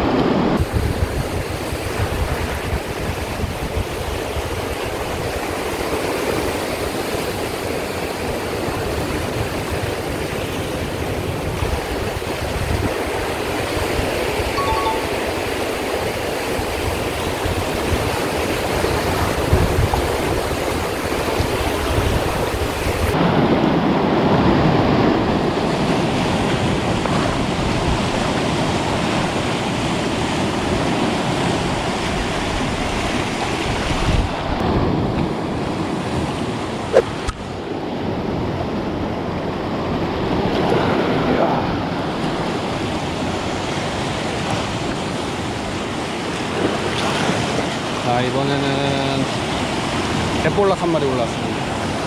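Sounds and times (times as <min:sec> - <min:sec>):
wind on microphone: 0:00.0 - 0:48.0
surf breaking on rocky shore: 0:00.0 - 0:52.0.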